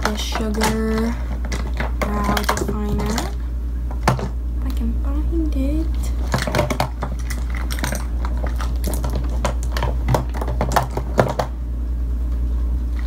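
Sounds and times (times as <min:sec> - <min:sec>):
plastic cases clicking together: 0:00.0 - 0:04.3, 0:06.2 - 0:11.5
low steady hum: 0:00.0 - 0:13.0.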